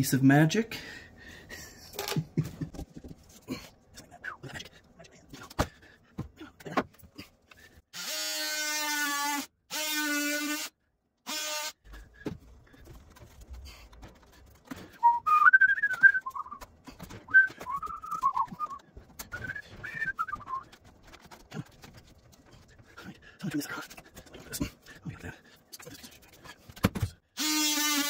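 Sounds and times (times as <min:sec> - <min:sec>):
cordless drill running: 0:07.9 - 0:10.7, 0:27.4 - 0:28.0
person whistling a tune: 0:15.0 - 0:16.7, 0:17.3 - 0:20.7.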